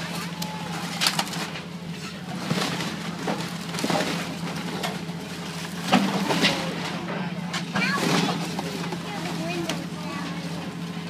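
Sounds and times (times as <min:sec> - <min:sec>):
splintering wood cracks and crashes: 0:00.0 - 0:07.0
wooden building being crushed: 0:00.0 - 0:07.1, 0:07.7 - 0:09.1
excavator diesel engine running: 0:00.0 - 0:11.0.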